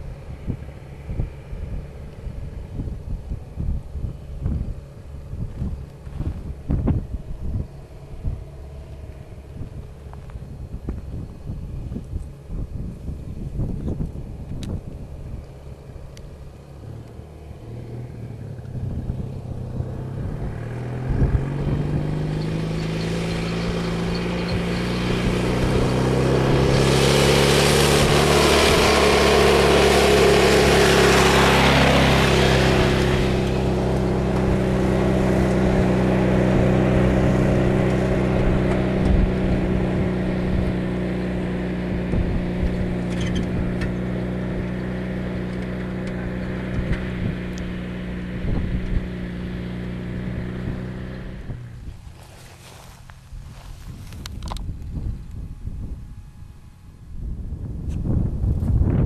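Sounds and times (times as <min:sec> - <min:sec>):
tractor engine under load: 0:00.0 - 0:57.0
rushing noise: 0:21.1 - 0:39.8.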